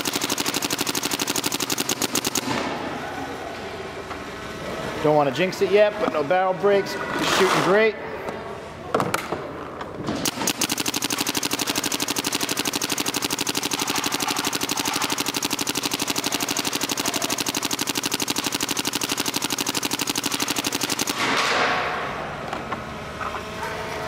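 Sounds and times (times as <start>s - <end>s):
paintball marker rapid firing: 0.0s - 2.8s, 10.1s - 22.0s.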